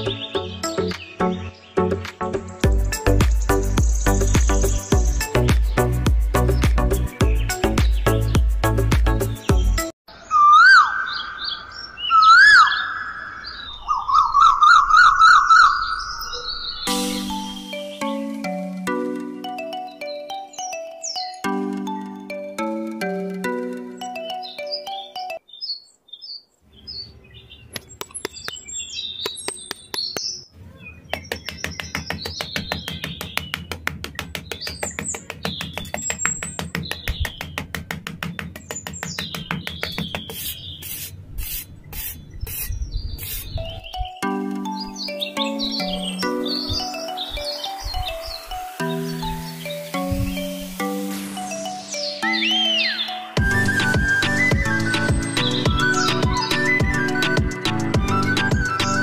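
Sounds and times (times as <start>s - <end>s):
birds chirping: 0.0s - 22.3s, 23.6s - 59.0s
whistled bird calls: 10.1s - 17.9s, 51.9s - 59.0s
warbling bird trill: 10.1s - 18.1s, 39.2s - 59.0s
metal trowel scraping sand: 40.2s - 43.6s
held whistle tone: 52.1s - 59.0s.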